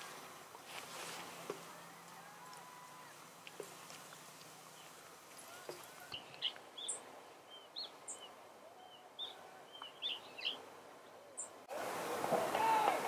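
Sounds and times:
loud outdoor background noise: 0:00.0 - 0:07.2
songbirds chirping: 0:00.0 - 0:12.0
faint background hiss: 0:00.0 - 0:13.0.

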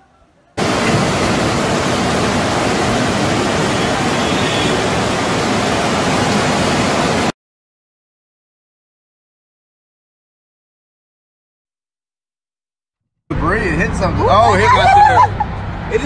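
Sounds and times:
floodwater rushing: 0:00.6 - 0:07.3.

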